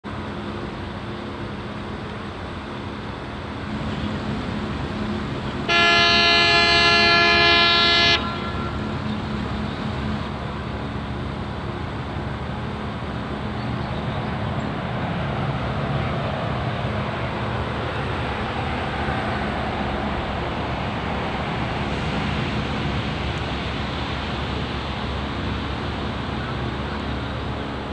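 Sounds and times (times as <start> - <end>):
loud horn blast: 5.7 - 9.0.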